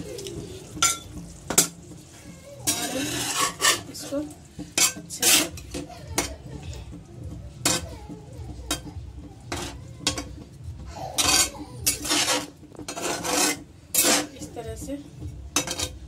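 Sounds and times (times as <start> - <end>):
metal spoon scraping a pan: 0.1 - 6.3, 7.6 - 8.0, 8.7 - 10.5, 11.1 - 16.0.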